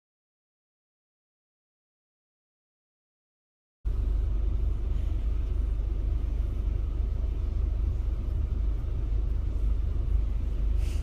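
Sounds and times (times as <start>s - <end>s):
car cabin road noise: 3.9s - 11.0s.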